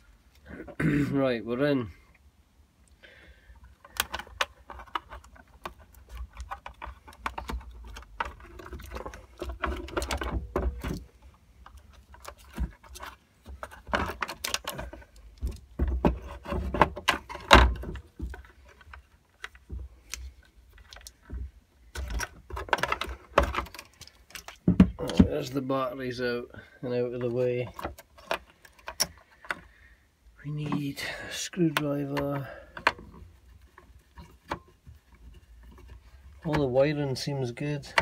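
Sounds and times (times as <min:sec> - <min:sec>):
batteries knocking and rattling: 0:03.6 - 0:25.6.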